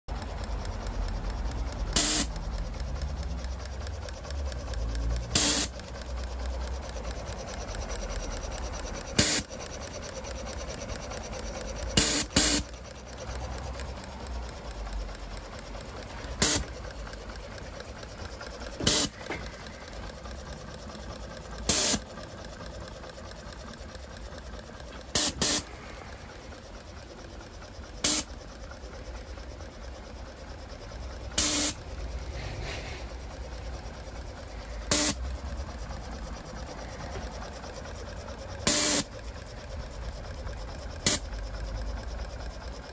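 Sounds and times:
model steam locomotive hissing: 0:31.3 - 0:39.2.

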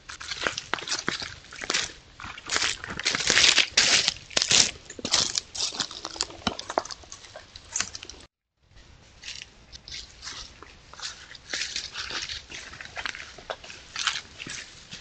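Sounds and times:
footsteps crunching through dry leaves: 0:00.0 - 0:08.3, 0:09.0 - 0:15.0.

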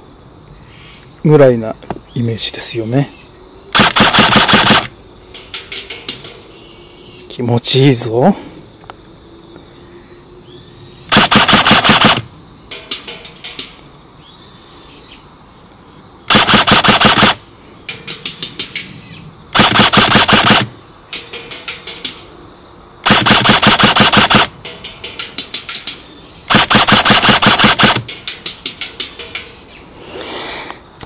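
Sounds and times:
airsoft gun firing bursts: 0:03.8 - 0:04.9, 0:11.1 - 0:12.3, 0:16.3 - 0:17.4, 0:19.6 - 0:20.8, 0:23.0 - 0:24.5, 0:26.5 - 0:28.1
quick clicks: 0:03.8 - 0:06.4, 0:11.1 - 0:13.8, 0:16.3 - 0:18.9, 0:19.6 - 0:22.3, 0:23.0 - 0:29.6.

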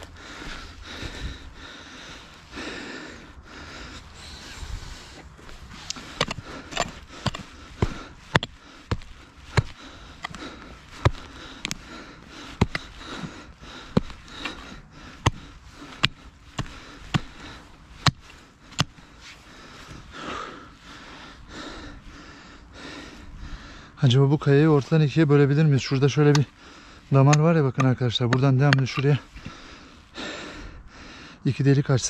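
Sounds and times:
digging tool striking stony ground: 0:05.4 - 0:19.1, 0:25.8 - 0:26.5, 0:27.1 - 0:29.6.

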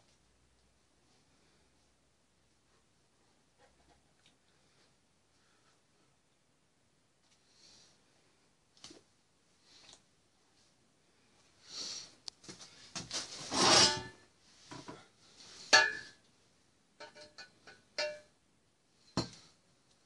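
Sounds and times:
metal pipes scraping and clanking: 0:13.1 - 0:14.9, 0:17.0 - 0:18.2.

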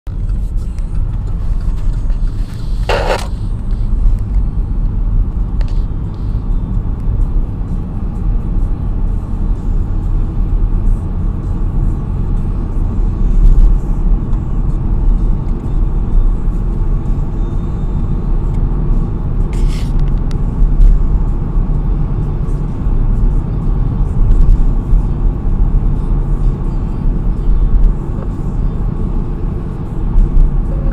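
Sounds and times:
car engine rumble: 0:00.0 - 0:30.9
short hiss: 0:19.5 - 0:20.0.

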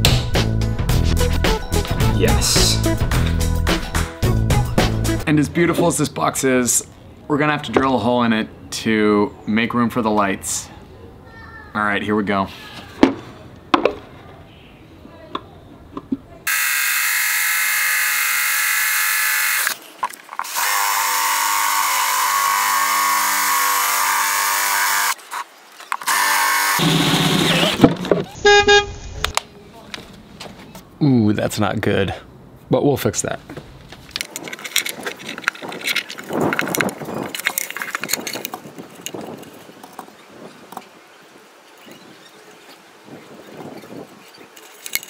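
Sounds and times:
cordless drill whining: 0:16.5 - 0:19.8, 0:20.4 - 0:25.2, 0:26.0 - 0:27.8
plastic connectors clicking and rattling: 0:34.1 - 0:40.1, 0:44.5 - 0:45.0
cable scraping through wood: 0:34.1 - 0:40.3.

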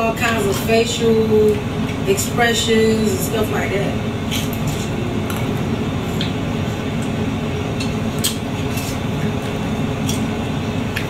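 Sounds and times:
chewing clicks: 0:07.8 - 0:10.3.

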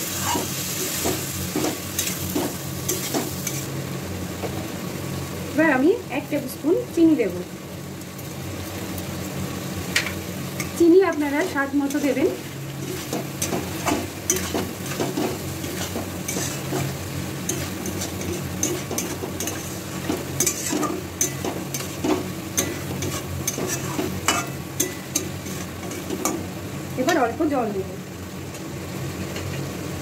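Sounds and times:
masala frying: 0:00.0 - 0:30.0
spatula scraping metal pan: 0:11.4 - 0:26.1.

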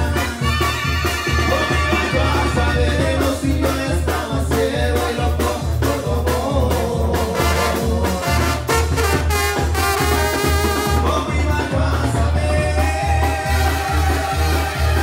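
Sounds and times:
brass instruments playing: 0:00.0 - 0:15.0.

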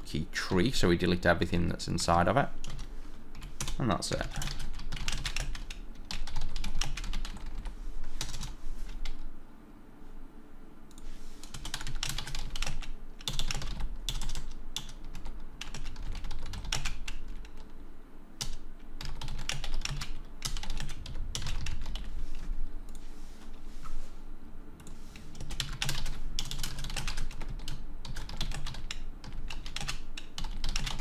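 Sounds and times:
typing on computer keyboard: 0:04.4 - 0:09.2, 0:11.5 - 0:17.7, 0:18.4 - 0:22.1, 0:25.4 - 0:31.0.

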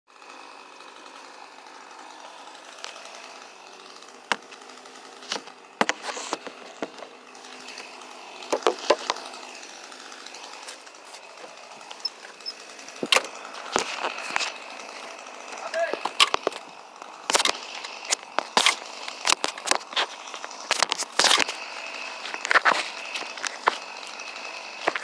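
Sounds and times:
chainsaw cutting tree: 0:00.1 - 0:25.0
sharp knocks: 0:08.5 - 0:09.3.

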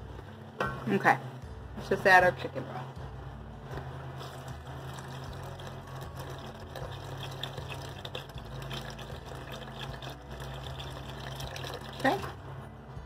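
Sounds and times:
broth pouring and splashing: 0:04.2 - 0:12.4.

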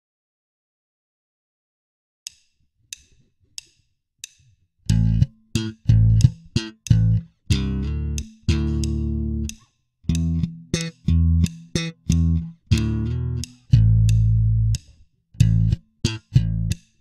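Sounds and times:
count-in clicks: 0:03.0 - 0:16.8
slap bass playing: 0:04.9 - 0:16.8.

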